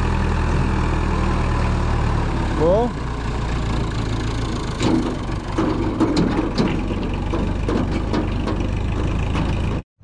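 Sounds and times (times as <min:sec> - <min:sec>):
tractor engine running: 0:00.0 - 0:09.9
sharp knocks: 0:04.8 - 0:09.6.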